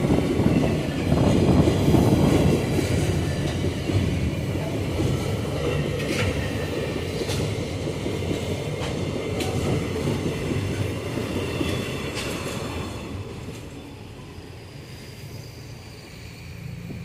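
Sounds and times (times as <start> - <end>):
faint wheel squeal: 13.7 - 17.0.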